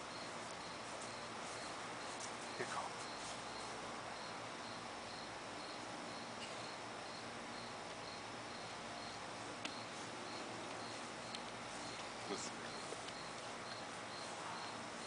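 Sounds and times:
cricket chirping: 0.0 - 15.0.

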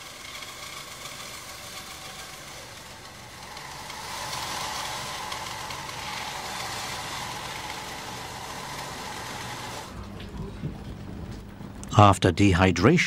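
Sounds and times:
precision saw cutting: 0.0 - 10.0.

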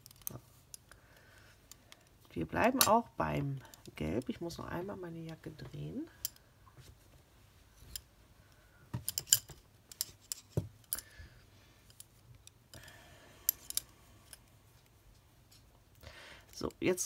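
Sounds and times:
metal knitting needles clicking: 0.0 - 1.0.

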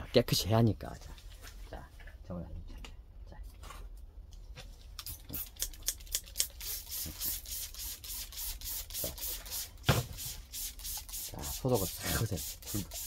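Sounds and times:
spray bottle hissing sprays: 5.1 - 13.0.

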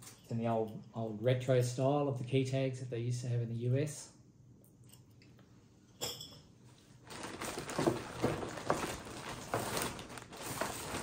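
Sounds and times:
plastic packaging crinkling: 7.0 - 11.0.

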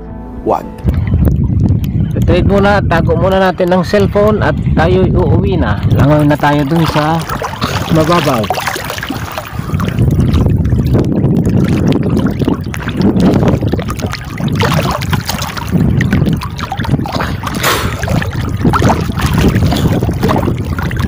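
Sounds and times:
wind buffeting microphone: 0.8 - 21.0
seawater sloshing and lapping: 3.0 - 21.0
water splash: 5.8 - 21.0.

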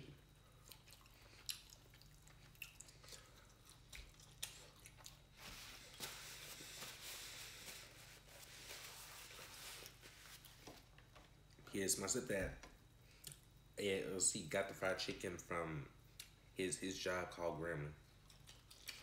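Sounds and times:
person chewing: 0.4 - 6.7, 18.2 - 19.0
paper napkin rustling: 5.3 - 10.9.

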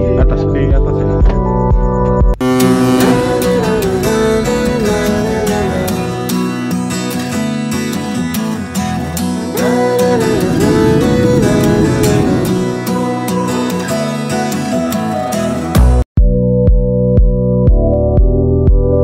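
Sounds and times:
background music with strummed guitar: 2.4 - 16.0.

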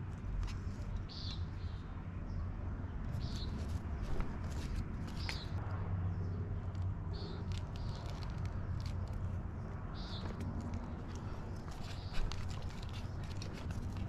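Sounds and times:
bird chirping: 1.0 - 2.4, 3.1 - 3.6, 9.9 - 10.5
wire leads clicking and rustling: 6.7 - 9.4, 10.0 - 14.0.

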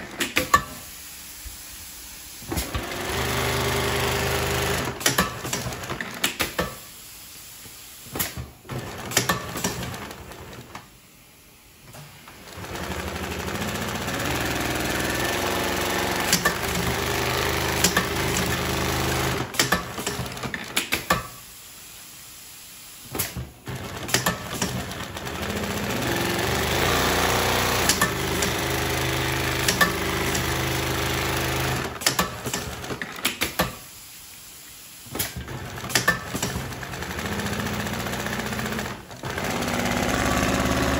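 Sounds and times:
industrial sewing machine running: 2.6 - 6.0, 8.7 - 10.7, 12.4 - 20.6, 23.6 - 33.0, 35.4 - 40.9.

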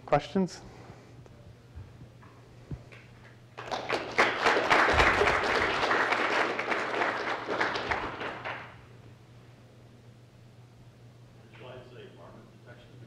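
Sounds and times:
audience applauding: 3.6 - 8.8.

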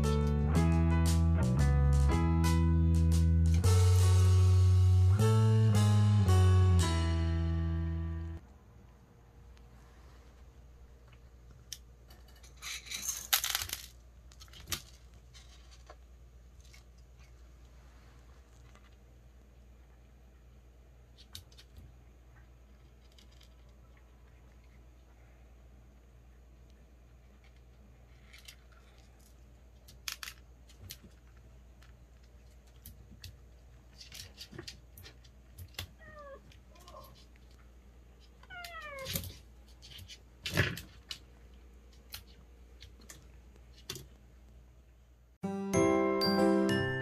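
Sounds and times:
cat scratching wire cage: 32.3 - 36.0, 36.6 - 41.3.

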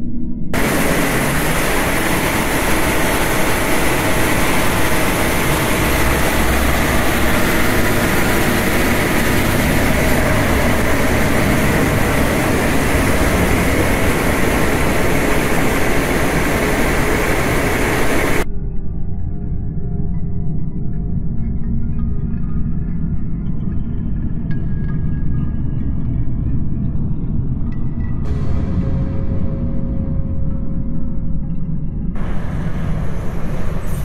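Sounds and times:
water cannons spraying: 0.6 - 18.4
fire truck engines droning: 0.6 - 18.5, 32.2 - 34.0.

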